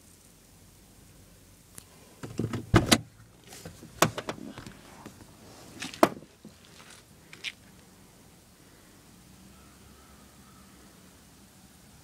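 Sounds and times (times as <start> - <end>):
light clicks and rustling: 1.7 - 7.8
sharp knocks and thumps: 2.2 - 4.7, 5.8 - 6.6.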